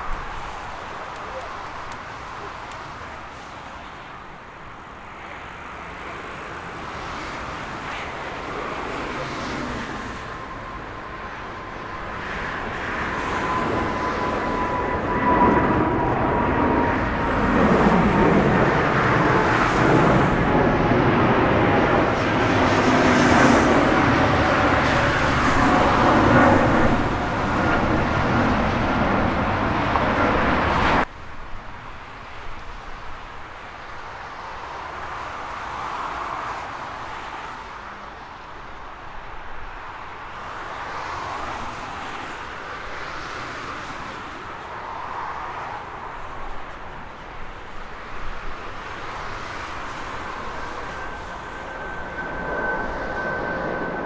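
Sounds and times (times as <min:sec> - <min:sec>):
high engine whine: 0:00.0 - 0:31.3, 0:45.7 - 0:54.0
jet engines rumbling at takeoff: 0:00.0 - 0:54.0.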